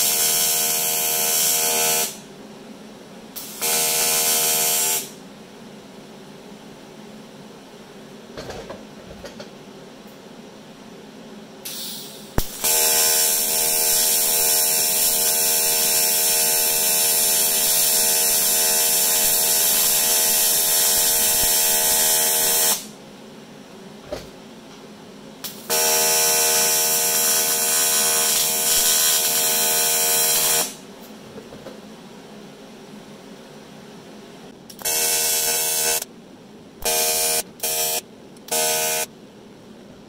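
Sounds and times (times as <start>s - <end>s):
welding arc buzzing: 0.0s - 2.3s, 3.4s - 5.2s, 11.7s - 23.0s, 25.4s - 30.8s, 34.7s - 36.1s, 36.8s - 39.1s.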